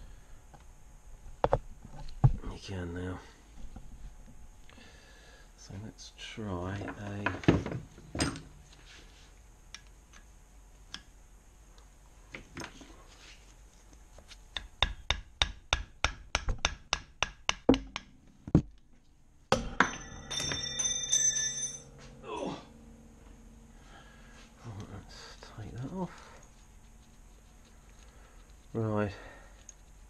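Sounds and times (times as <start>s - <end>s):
wooden mallet striking metal: 14.6s - 18.2s, 19.5s - 22.0s
metal clatter with ringing tones: 19.5s - 22.1s.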